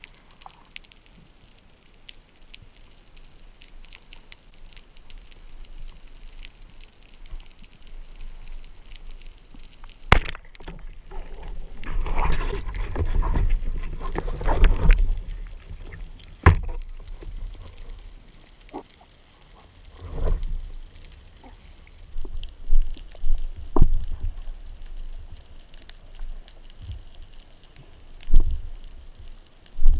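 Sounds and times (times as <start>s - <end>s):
speargun shot crack underwater: 10.1s - 11.0s
scraping and knocking underwater: 10.2s - 18.2s, 18.8s - 24.6s.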